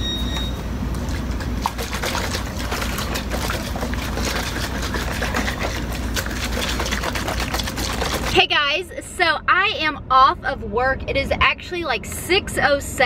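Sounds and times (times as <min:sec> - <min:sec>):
liquid sloshing in shaker bottle: 0:00.9 - 0:08.4.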